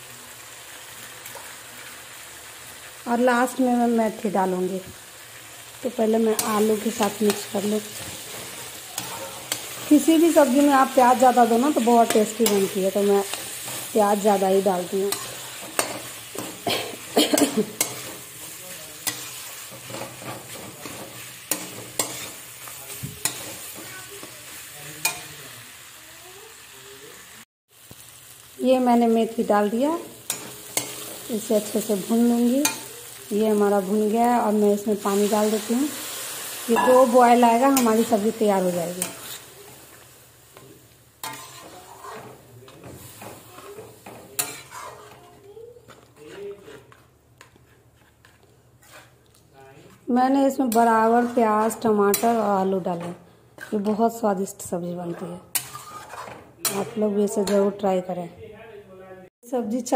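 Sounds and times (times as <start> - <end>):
food sizzling in a pan: 0.0 - 58.2
metal spatula scraping pan: 6.3 - 25.4, 30.1 - 33.2, 35.0 - 39.6, 41.2 - 49.2, 49.8 - 54.0, 55.1 - 57.7
spatula clanking against pan: 15.1 - 16.7, 17.3 - 18.3, 36.8 - 38.0, 41.2 - 45.3, 55.5 - 57.7.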